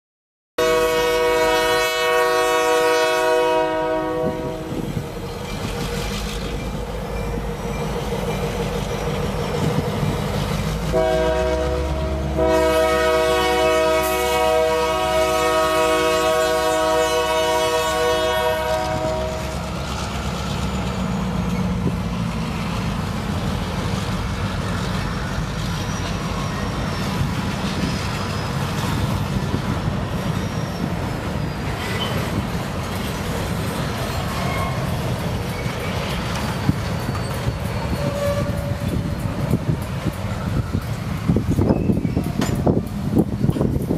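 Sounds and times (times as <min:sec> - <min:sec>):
locomotive air horn blasts: 0:00.6 - 0:05.0, 0:10.9 - 0:19.7, 0:34.3 - 0:34.9, 0:37.9 - 0:39.7
diesel locomotive rumbling: 0:00.6 - 0:43.9.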